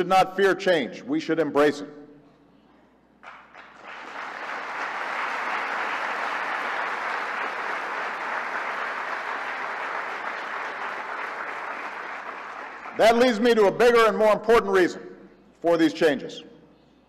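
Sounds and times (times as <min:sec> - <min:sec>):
audience applauding: 0:03.2 - 0:13.7.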